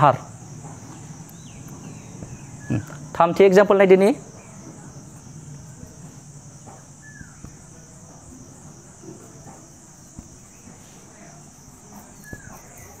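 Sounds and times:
insects chirring: 0.0s - 13.0s
marker pen writing on whiteboard: 9.5s - 13.0s
marker squeak: 12.0s - 13.0s.

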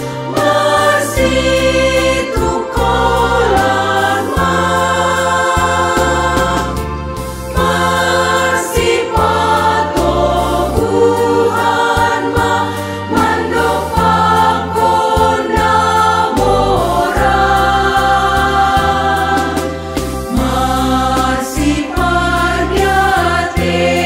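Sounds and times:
instrumental bass accompaniment: 0.0s - 24.0s
women's choir singing in harmony: 0.0s - 24.0s.

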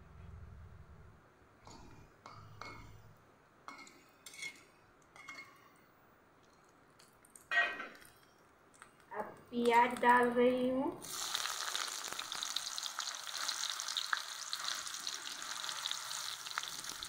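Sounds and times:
metal spatula scraping a pan: 3.7s - 4.6s.

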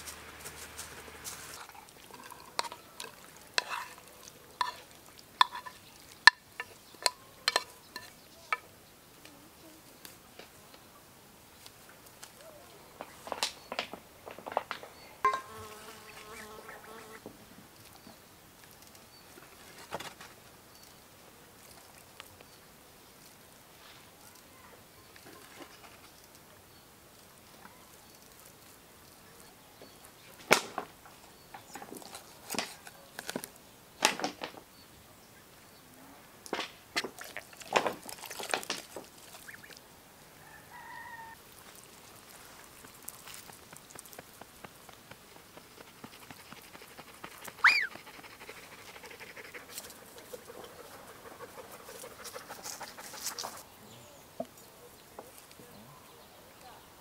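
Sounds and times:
knocks and clatters of dishes: 15.2s - 15.6s
short high chirp: 47.6s - 47.9s.

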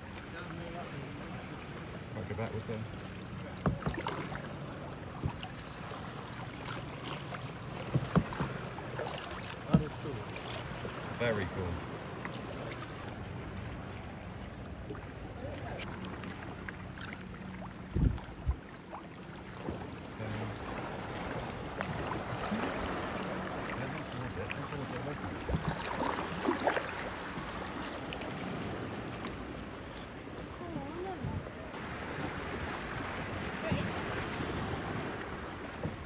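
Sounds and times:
water lapping around kayaks: 0.0s - 36.0s
wind on microphone: 17.8s - 18.7s.

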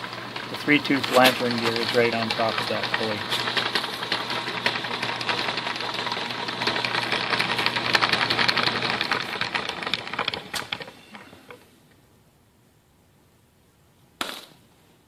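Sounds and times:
fast gear clatter: 0.0s - 11.3s
motor humming: 0.0s - 11.7s.

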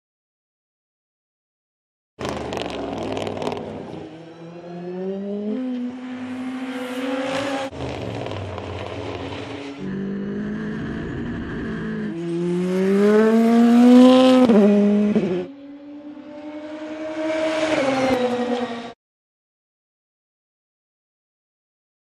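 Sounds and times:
race car engine accelerating: 2.2s - 19.0s.

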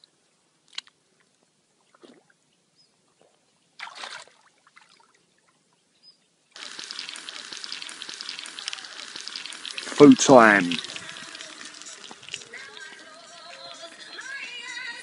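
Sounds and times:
water splash: 3.8s - 5.2s, 6.6s - 13.7s
food sizzling in a pan: 6.6s - 14.6s.

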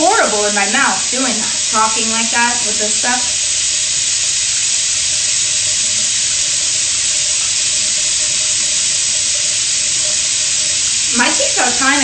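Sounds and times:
tap water running: 0.0s - 12.0s.

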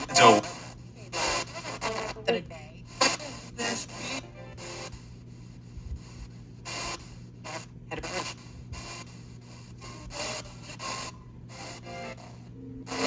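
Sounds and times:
radio static bursts: 0.0s - 5.2s, 6.0s - 13.0s
steady low hum: 0.0s - 13.0s
snatches of broadcast sound: 3.0s - 5.0s.

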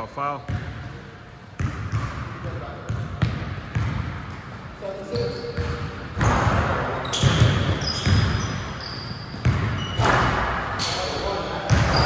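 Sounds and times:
sneakers squeaking: 0.5s - 12.0s
basketball bouncing on hardwood: 1.6s - 4.4s, 7.2s - 8.4s, 9.3s - 10.2s, 11.7s - 12.0s.

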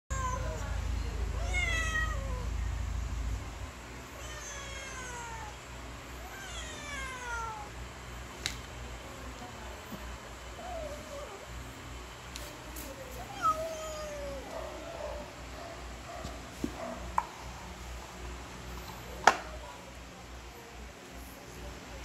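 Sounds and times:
cats meowing: 0.1s - 0.8s, 1.4s - 2.7s, 4.1s - 5.6s, 6.2s - 7.8s, 13.1s - 15.3s.

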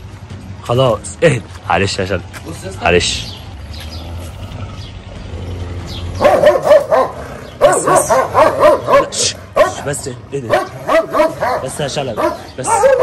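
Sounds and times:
dog barking: 6.2s - 13.0s.

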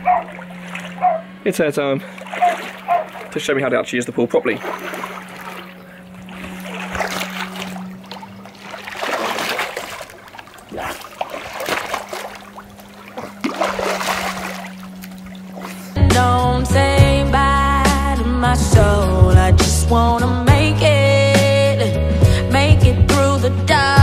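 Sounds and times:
swimming strokes splashing: 0.0s - 16.2s
spa jets humming: 0.0s - 22.7s
music: 15.9s - 24.0s.

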